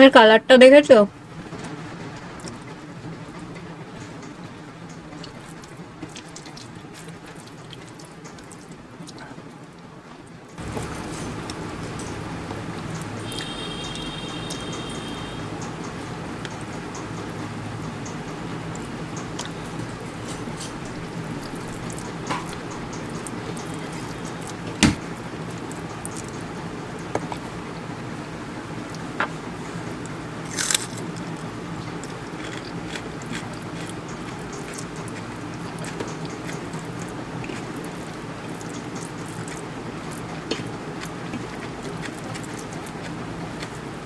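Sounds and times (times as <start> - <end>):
faint hum and hiss: 0.0 - 44.0
chewing: 18.0 - 24.7, 30.0 - 44.0.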